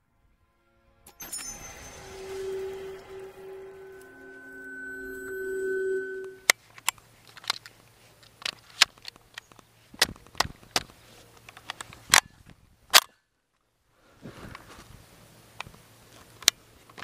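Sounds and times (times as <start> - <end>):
clicks and knocks handling a gun: 7.4 - 12.3.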